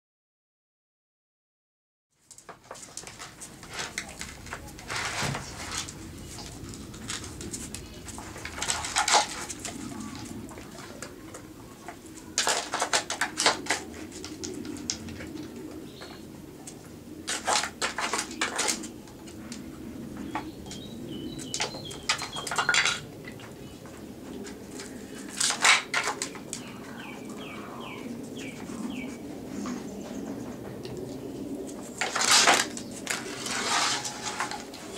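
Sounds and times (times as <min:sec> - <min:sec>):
pigeon cooing: 0:05.4 - 0:34.9
small bird chirping: 0:20.4 - 0:22.8.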